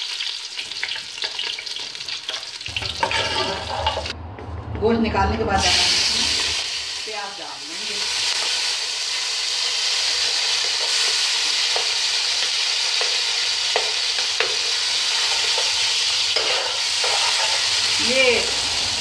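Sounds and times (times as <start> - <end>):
onions sizzling in oil: 0.0 - 4.1, 5.6 - 19.0
metal spatula scraping pot: 1.2 - 4.2, 16.4 - 17.8.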